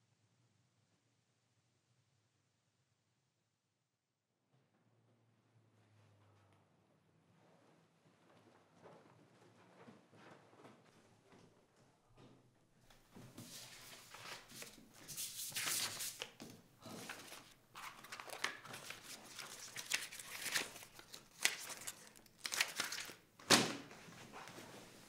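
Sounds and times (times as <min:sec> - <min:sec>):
paper rustling and crinkling: 0:13.2 - 0:25.0.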